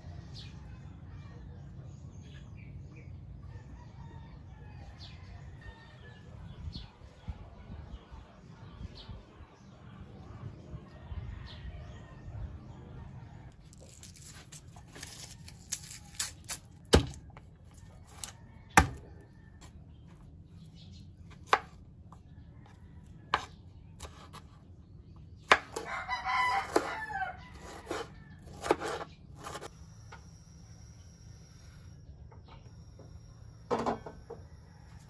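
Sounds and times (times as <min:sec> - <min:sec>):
rooster crowing: 0:03.4 - 0:06.3, 0:25.7 - 0:28.8, 0:34.0 - 0:35.0
knife chopping on cutting board: 0:16.9 - 0:17.2, 0:18.1 - 0:19.0, 0:21.4 - 0:21.8, 0:23.3 - 0:24.6, 0:25.4 - 0:25.9, 0:26.6 - 0:26.9, 0:27.5 - 0:29.7.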